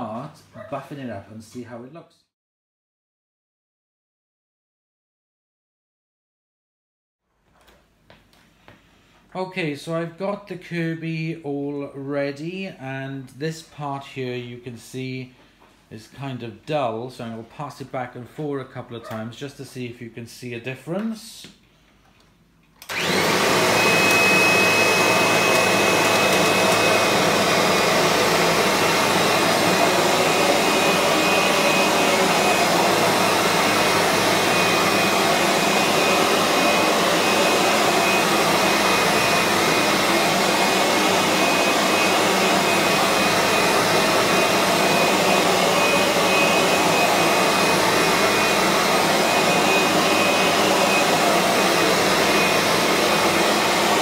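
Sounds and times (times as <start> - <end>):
vacuum cleaner whining: 22.8 - 54.0.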